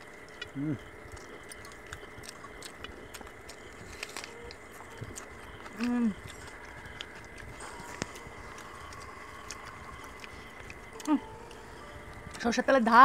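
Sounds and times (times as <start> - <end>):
people chewing: 0.0 - 12.7
person humming: 5.7 - 7.0, 7.6 - 12.0.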